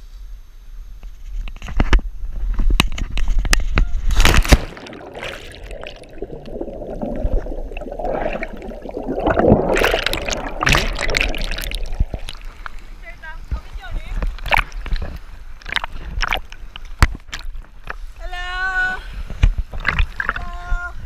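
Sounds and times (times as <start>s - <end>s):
loud splash into water: 4.1s - 12.6s
water splashing: 4.1s - 17.9s, 19.7s - 20.7s
muffled underwater bubbling: 4.6s - 13.0s, 14.1s - 17.5s, 19.7s - 20.6s
wind noise on microphone: 19.1s - 21.0s.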